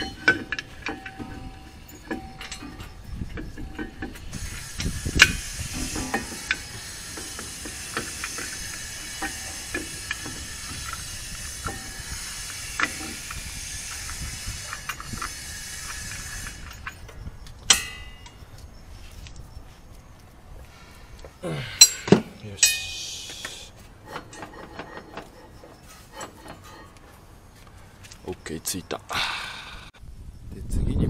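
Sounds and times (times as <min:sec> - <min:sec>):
metal clicks and knocks: 0:00.0 - 0:06.6, 0:24.0 - 0:27.2
ringing metallic clank: 0:00.0 - 0:18.6, 0:21.7 - 0:27.3
steady hiss: 0:03.8 - 0:17.0, 0:21.8 - 0:23.9.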